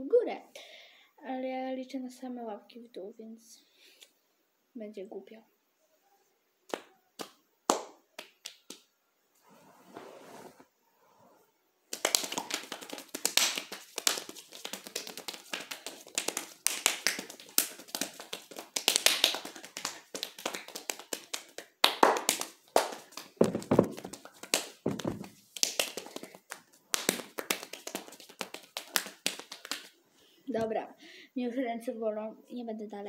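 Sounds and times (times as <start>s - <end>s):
fast hand claps and slaps: 6.7s - 8.8s, 11.9s - 30.0s
deep thumping slaps: 23.4s - 24.2s, 24.8s - 25.4s.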